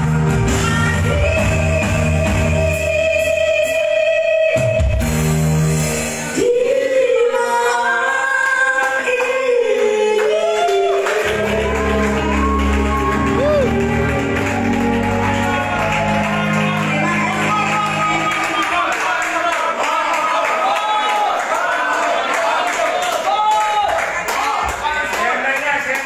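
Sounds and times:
electronic keyboard accompaniment: 10.5 - 19.8.

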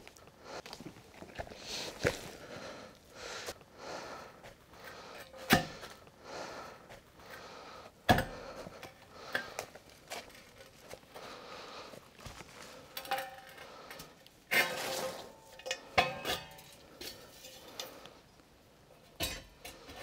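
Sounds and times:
soft rustling and shuffling: 0.0 - 3.7.

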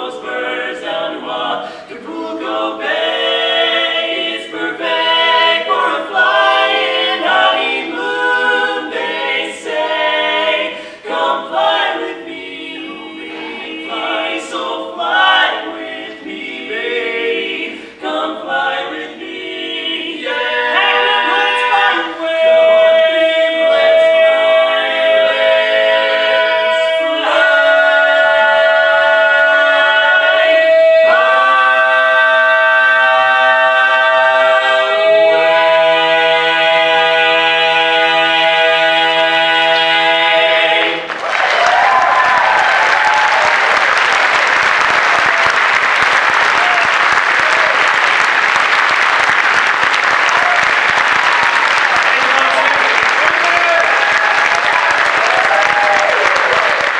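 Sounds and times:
male vocal quartet singing: 0.0 - 41.1.

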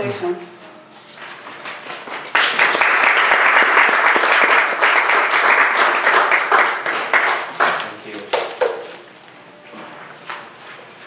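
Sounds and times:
audience applauding: 1.4 - 8.8.

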